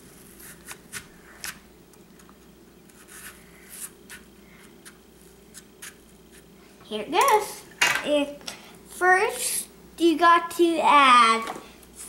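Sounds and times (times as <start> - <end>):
knife scraping apple: 0.0 - 1.6, 2.9 - 6.5.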